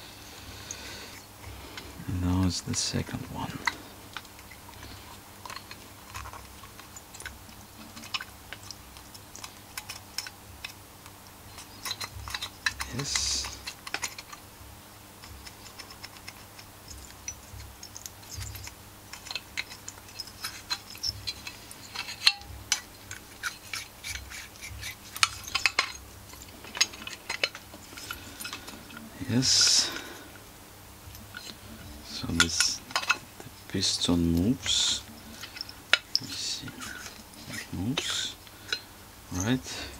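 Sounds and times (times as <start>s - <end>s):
small metal clicks: 3.6s - 14.4s, 15.2s - 30.4s, 31.1s - 39.9s
light metal scraping: 15.2s - 30.4s, 31.2s - 39.9s.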